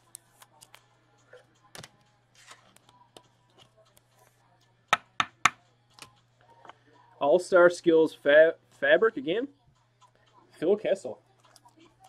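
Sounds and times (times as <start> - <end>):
cards rustling and tapping: 0.0 - 0.9, 1.7 - 4.0.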